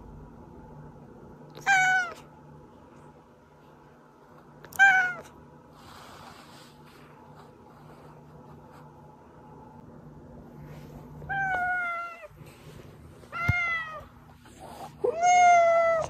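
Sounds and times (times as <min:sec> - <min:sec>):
faint low hum: 0:00.0 - 0:16.0
cat meowing: 0:01.6 - 0:02.3, 0:04.7 - 0:05.3, 0:11.3 - 0:12.3, 0:13.3 - 0:14.1, 0:15.0 - 0:16.0.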